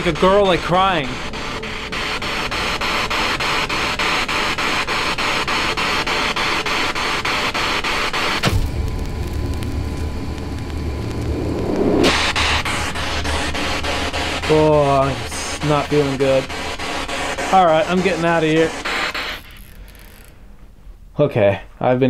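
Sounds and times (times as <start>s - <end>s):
sweep ticks: 0.0s - 14.5s
radio static hiss: 0.0s - 20.2s
low hum with faint tone: 8.4s - 18.5s.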